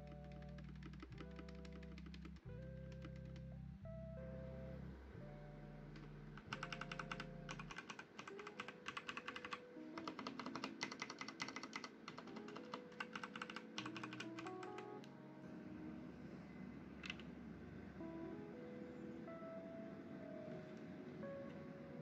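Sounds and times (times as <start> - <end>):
mechanical keyboard typing: 0.0 - 3.5, 5.9 - 15.1, 17.0 - 17.3
soft background music: 0.0 - 22.0.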